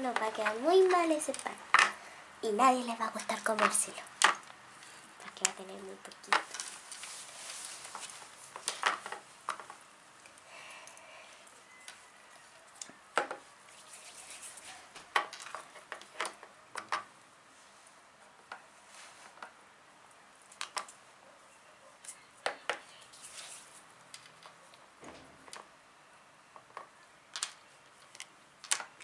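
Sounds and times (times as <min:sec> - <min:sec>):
plastic toys clicking and knocking: 0:00.0 - 0:02.0, 0:03.1 - 0:04.6, 0:05.2 - 0:06.7, 0:08.5 - 0:11.0, 0:12.7 - 0:13.4, 0:14.9 - 0:17.1, 0:20.5 - 0:21.0, 0:24.1 - 0:25.7, 0:26.6 - 0:29.0
soft handling rustle: 0:04.8 - 0:12.9, 0:17.5 - 0:19.6, 0:22.9 - 0:24.8.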